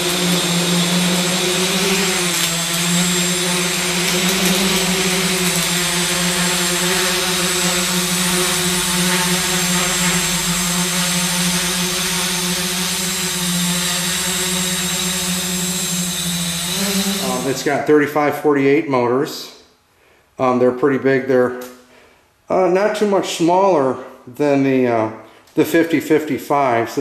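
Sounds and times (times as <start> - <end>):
drone motors buzzing: 0.0 - 17.7
propeller air rush: 0.0 - 17.8.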